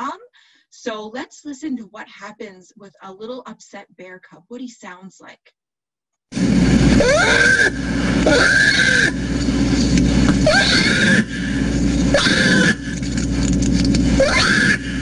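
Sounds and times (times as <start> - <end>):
steady low drone: 6.4 - 15.0
bear cub wailing cries: 7.0 - 9.2, 10.4 - 11.5, 12.1 - 12.9, 14.2 - 15.0.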